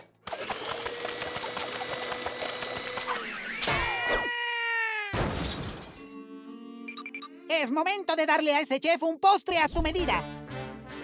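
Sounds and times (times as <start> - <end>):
cartoon stand mixer rattling: 0.3 - 3.3.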